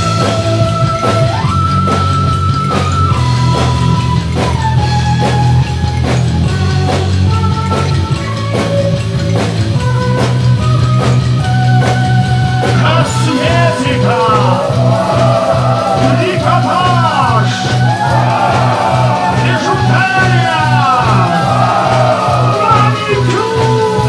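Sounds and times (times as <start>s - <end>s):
bass guitar: 0.0s - 24.0s
drum kit beat: 0.0s - 24.0s
person singing: 12.8s - 24.0s.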